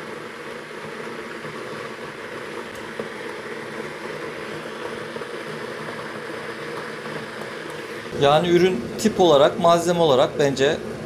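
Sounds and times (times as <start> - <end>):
electric kettle heating water: 0.0 - 11.0.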